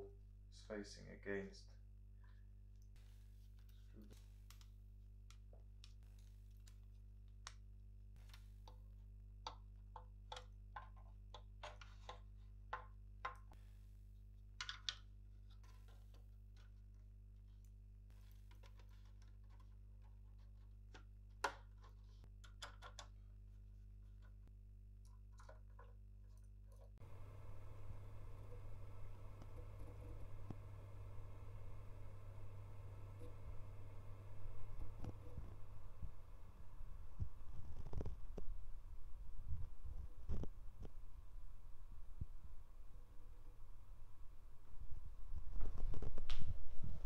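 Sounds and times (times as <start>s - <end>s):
low electrical hum: 0.0s - 47.0s
parts being handled: 14.6s - 35.8s.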